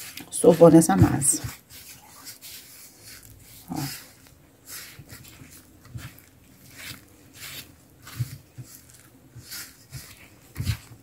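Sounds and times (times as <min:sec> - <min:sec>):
dough squelching in bowl: 0:00.0 - 0:11.0.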